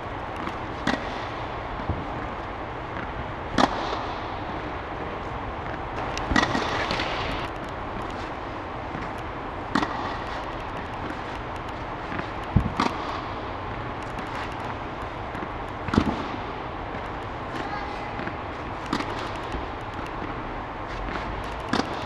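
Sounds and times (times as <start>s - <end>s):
steady background hiss: 0.0s - 22.0s
racket hitting tennis ball: 0.5s - 2.2s, 3.0s - 4.7s, 5.7s - 7.4s, 8.9s - 11.4s, 12.0s - 13.4s, 14.2s - 20.3s, 21.1s - 22.0s.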